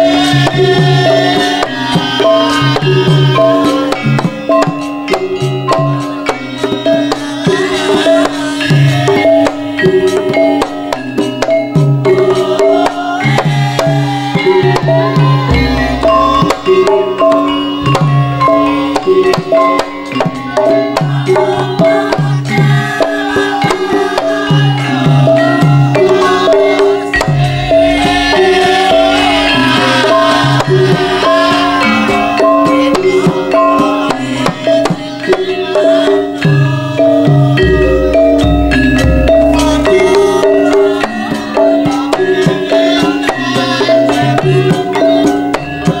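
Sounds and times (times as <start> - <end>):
hand drum strokes: 0.0 - 46.0
high wavering melody: 0.0 - 46.0
metallophones ringing melody: 0.0 - 46.0.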